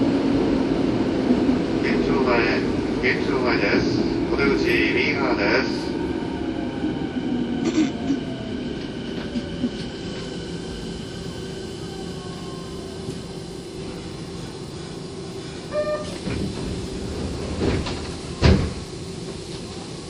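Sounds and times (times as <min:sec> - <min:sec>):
wheels rumbling on rail: 0:07.4 - 0:20.0
brief tone: 0:15.7 - 0:16.2.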